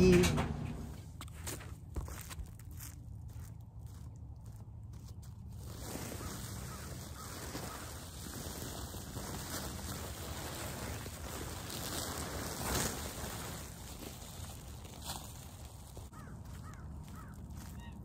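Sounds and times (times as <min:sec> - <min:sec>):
plastic sheet rustling and crinkling: 0:05.3 - 0:16.2.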